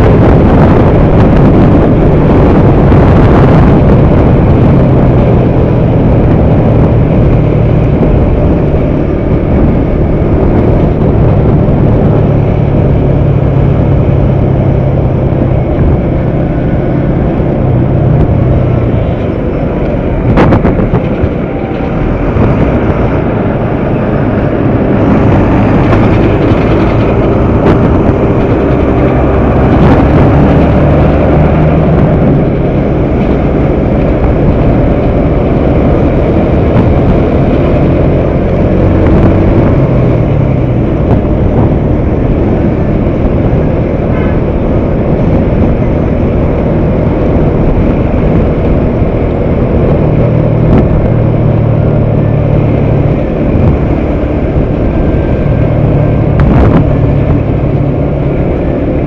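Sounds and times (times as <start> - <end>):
motorcycle engine running: 0.0 - 59.0
wind rushing over microphone: 0.0 - 59.0.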